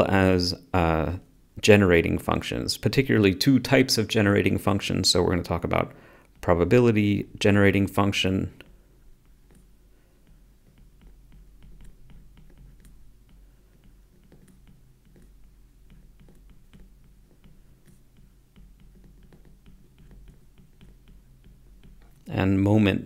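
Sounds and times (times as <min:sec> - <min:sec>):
stylus tapping on tablet screen: 0:08.6 - 0:22.3.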